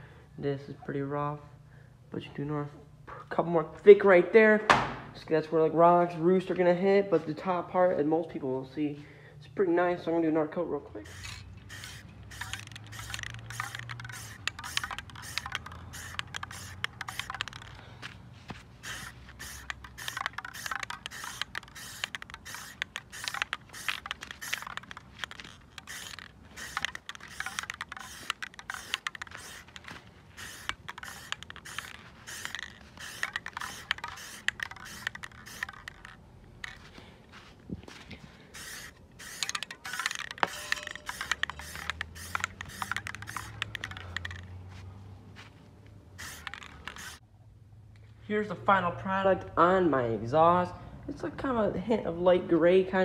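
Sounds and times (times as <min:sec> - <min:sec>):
spray paint can hissing: 0:11.0 - 0:17.9, 0:18.6 - 0:36.8, 0:38.5 - 0:44.5, 0:46.2 - 0:47.2.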